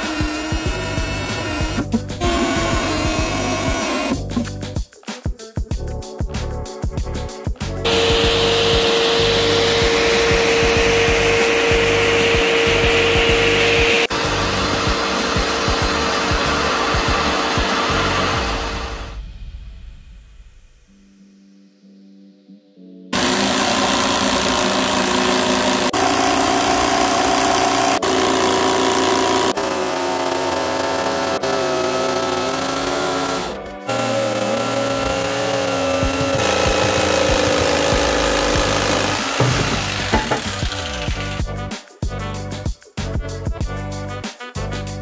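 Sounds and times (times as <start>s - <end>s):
vacuum cleaner running: 0.0s - 4.4s, 7.9s - 19.1s, 23.2s - 41.1s
jigsaw sawing wood: 0.0s - 4.5s, 7.9s - 19.1s, 23.2s - 41.4s.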